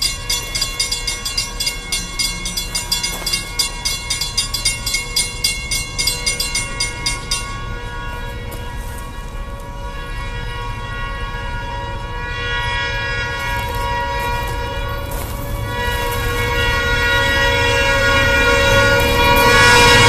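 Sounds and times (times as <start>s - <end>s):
low train rumble: 0.0s - 20.0s
locomotive air horn blasts: 6.3s - 20.0s.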